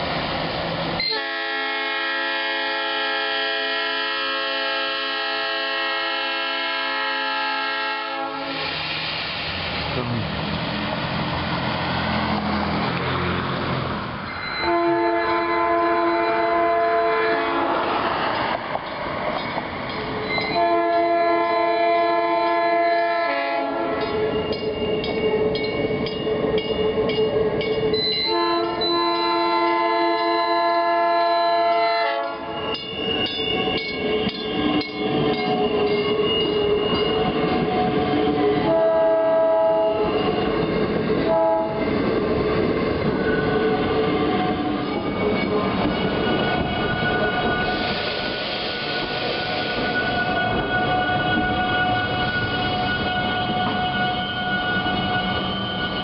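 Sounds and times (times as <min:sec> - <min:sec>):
train horn blasts: 0:01.0 - 0:08.7, 0:14.6 - 0:17.8, 0:20.5 - 0:24.2, 0:28.2 - 0:32.6, 0:36.9 - 0:40.2, 0:41.2 - 0:41.9, 0:50.2 - 0:56.0.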